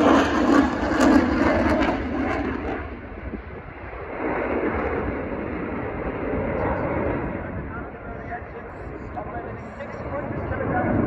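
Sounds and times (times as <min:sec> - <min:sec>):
jet flying overhead: 0:00.0 - 0:11.0.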